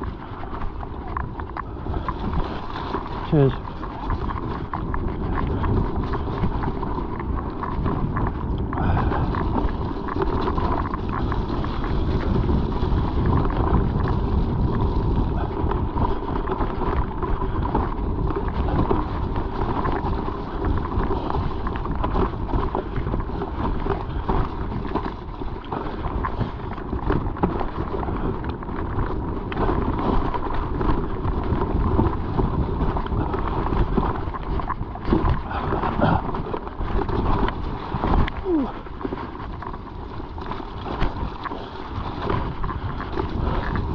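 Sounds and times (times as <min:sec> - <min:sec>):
bike rattles and clicks: 0:00.0 - 0:43.9
tyres rumbling on trail: 0:00.0 - 0:43.9
wind buffeting microphone: 0:00.0 - 0:43.9.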